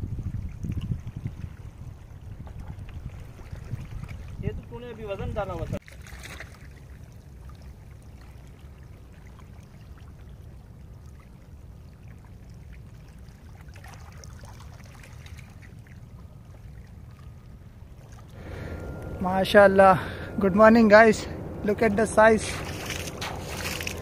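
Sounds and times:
seawater trickling over rocks: 0.5s - 18.4s, 22.5s - 24.0s
steady low rumble: 17.5s - 24.0s.

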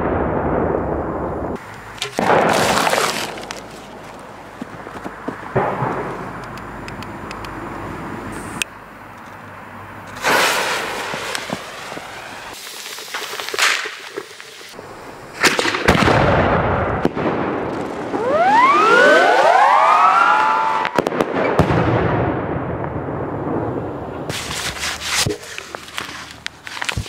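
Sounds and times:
firework launch bang: 0.0s - 3.4s, 5.5s - 6.4s, 10.2s - 14.2s, 15.4s - 18.6s
firework fuse hissing: 1.6s - 4.2s, 10.1s - 15.8s, 24.3s - 27.0s
firework bursting with whistles: 10.2s - 14.8s.

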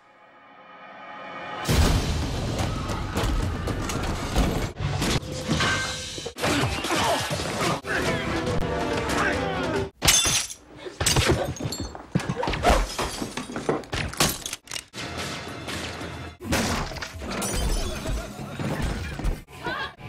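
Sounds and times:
background music: 6.3s - 10.0s.

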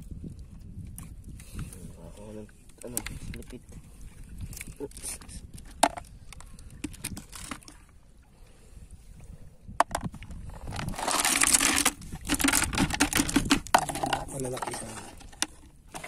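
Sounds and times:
rustling: 10.6s - 16.0s
shells clicking on plastic lid: 10.8s - 16.0s.

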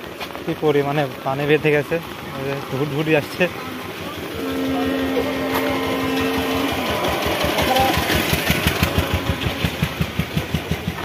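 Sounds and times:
rain on a wet road: 0.0s - 11.0s
small engine chugging: 0.6s - 11.0s
steady hum: 3.3s - 10.3s.

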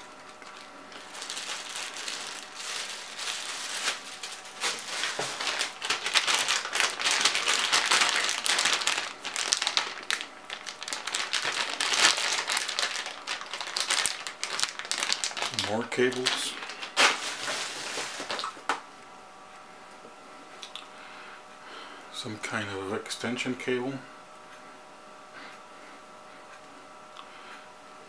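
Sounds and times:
plastic packaging crinkling: 0.0s - 18.8s.

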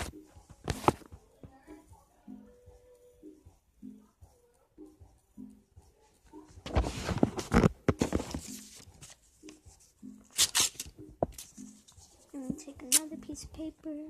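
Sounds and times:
paper crinkling and rustling: 6.6s - 9.3s.

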